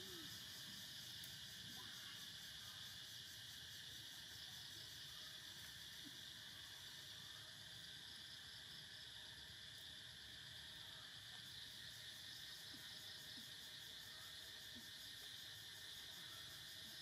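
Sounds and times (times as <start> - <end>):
insect chorus high trill: 0.0 - 5.4.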